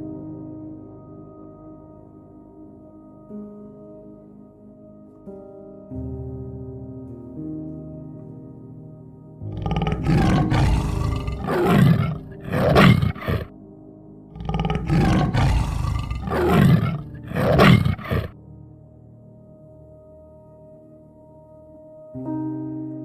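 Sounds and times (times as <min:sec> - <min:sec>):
soft ambient music: 0:00.0 - 0:23.0
tiger roaring: 0:09.5 - 0:13.5, 0:14.4 - 0:18.3.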